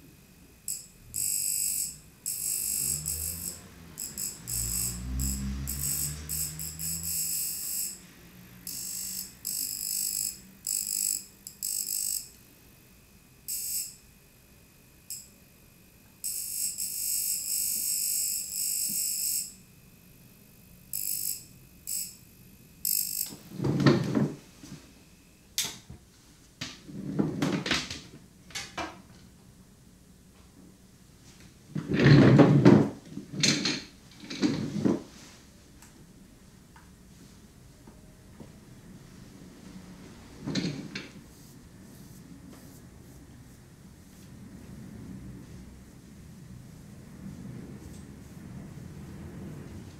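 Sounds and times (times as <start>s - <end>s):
facial machine buzzing: 0.0s - 23.5s.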